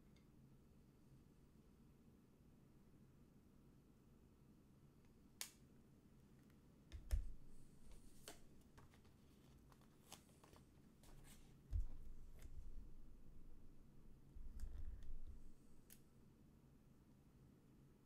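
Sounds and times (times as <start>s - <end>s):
hands clicking and tapping at desk: 6.9s - 12.6s.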